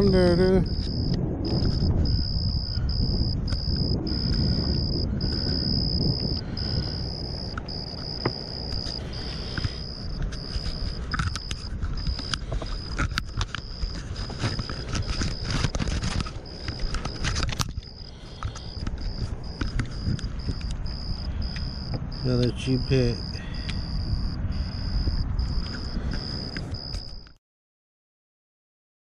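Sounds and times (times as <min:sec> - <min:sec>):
low rumbling noise: 0:00.0 - 0:27.2
insect trilling: 0:00.0 - 0:27.4.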